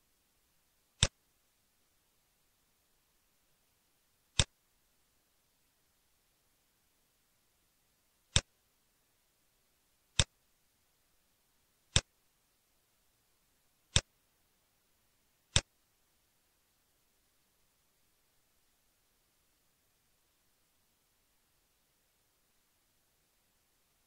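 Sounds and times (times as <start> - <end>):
computer mouse clicks: 11.9 - 12.1, 15.5 - 15.7.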